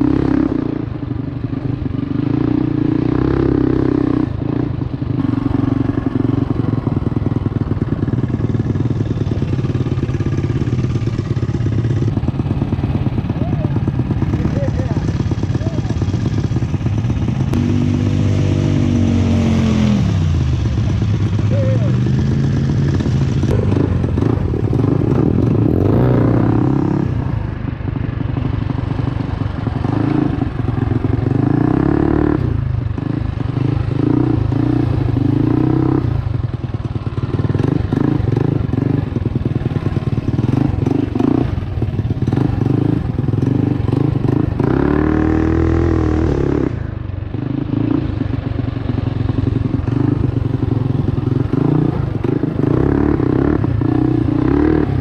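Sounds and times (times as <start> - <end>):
mini bike engine revving: 2.1 - 27.3, 37.1 - 48.4, 49.3 - 55.0.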